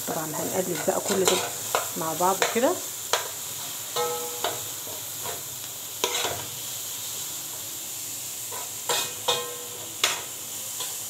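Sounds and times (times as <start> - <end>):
food sizzling in frying pan: 0.0 - 11.0
metal spoon clinking on pan: 0.8 - 3.3, 4.0 - 4.6, 8.5 - 11.0.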